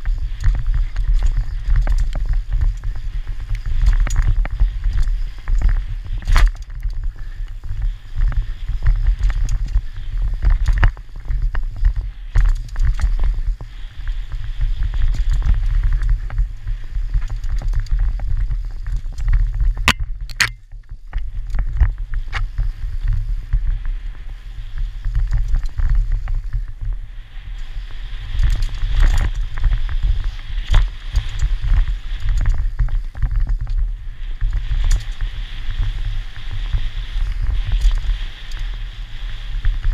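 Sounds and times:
bike rattling and knocking: 0.0 - 23.7, 25.0 - 26.9, 28.3 - 38.7
wind and trail rumble: 0.0 - 39.9
sharp clicks: 19.9 - 20.6.

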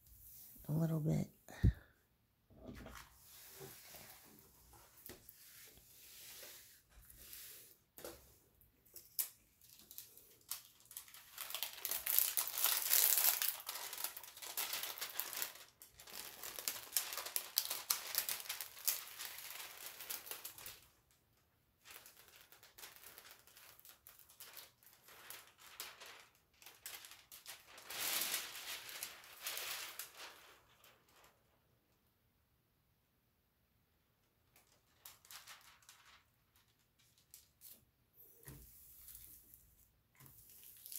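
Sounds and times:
plastic film crinkling: 8.9 - 31.5, 34.4 - 40.9.

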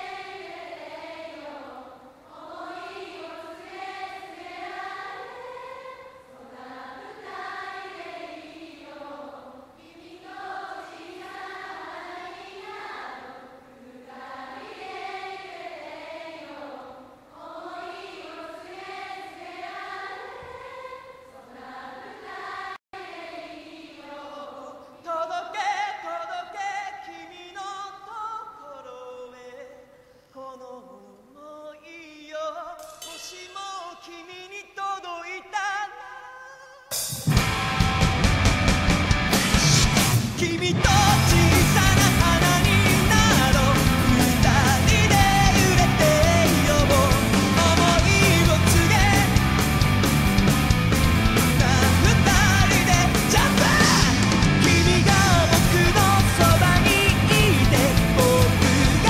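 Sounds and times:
crowd singing in unison: 0.0 - 27.1, 39.1 - 49.9, 51.5 - 59.0.

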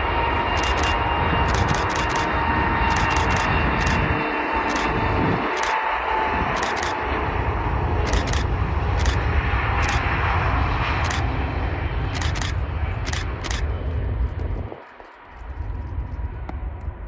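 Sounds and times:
jet engines roaring: 0.0 - 17.0
camera shutter firing: 0.6 - 2.3, 2.9 - 4.0, 4.7 - 4.9, 5.5 - 5.8, 6.6 - 7.0, 8.0 - 9.2, 9.8 - 10.0, 11.0 - 11.2, 12.1 - 13.8.

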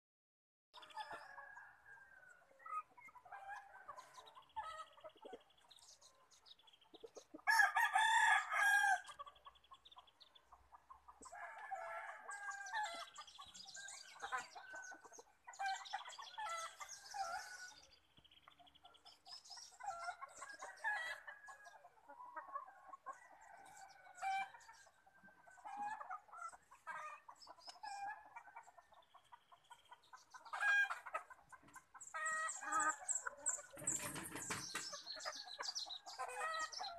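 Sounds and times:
chickens clucking: 0.8 - 7.8, 8.9 - 36.9
rooster crowing: 7.5 - 9.0.

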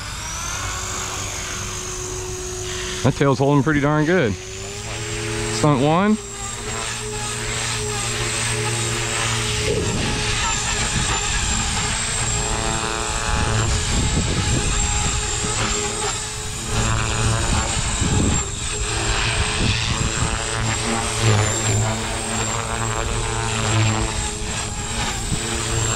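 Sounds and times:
helicopter rotors buzzing: 0.0 - 25.9
high motor whine: 0.0 - 25.9.

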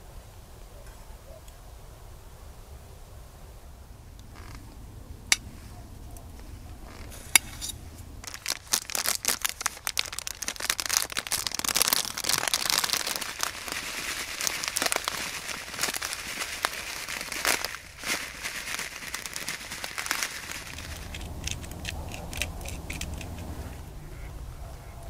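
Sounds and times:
plastic bag crinkling: 6.8 - 23.5.

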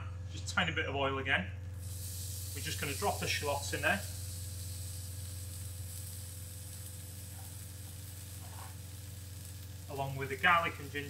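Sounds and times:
steady low hum: 0.0 - 11.0
shallots sizzling in oil: 1.8 - 11.0.

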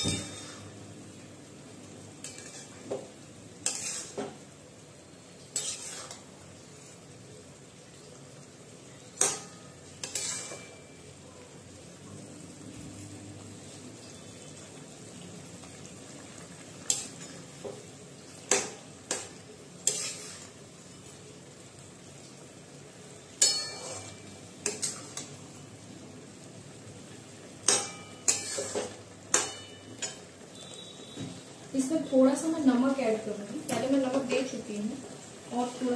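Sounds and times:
metal spatula scraping pan: 0.0 - 0.8, 2.2 - 3.0, 3.6 - 4.4, 5.5 - 6.3, 9.2 - 11.0, 18.5 - 20.6, 23.4 - 25.3, 27.7 - 30.2
curry sizzling: 0.0 - 35.9
spatula clacking against pan: 9.2 - 10.8, 18.4 - 20.2, 27.6 - 30.3.

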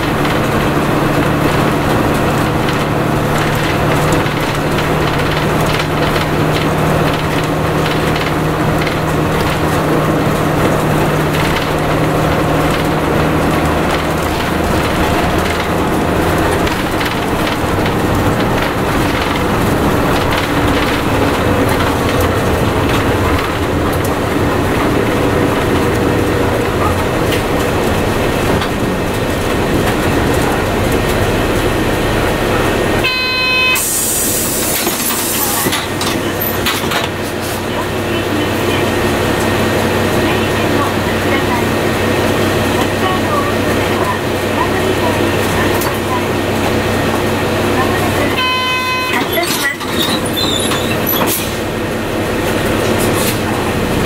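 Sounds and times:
bus diesel engine: 0.0 - 54.0
road noise: 0.0 - 54.0
brief electronic tone: 33.0 - 33.8
loud hiss: 33.8 - 35.6.

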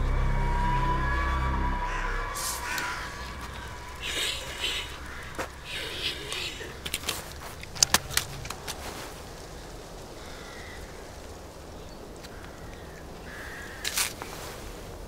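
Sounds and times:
crow cawing: 0.4 - 7.0, 9.6 - 11.2, 12.2 - 14.2.

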